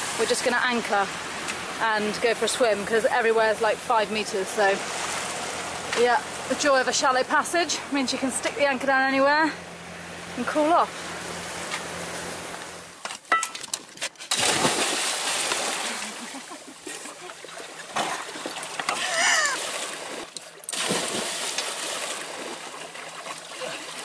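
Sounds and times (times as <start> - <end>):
boat engine hum: 0.0 - 13.0, 14.5 - 20.8
water splashing: 13.7 - 24.0
person whooping: 19.0 - 19.6.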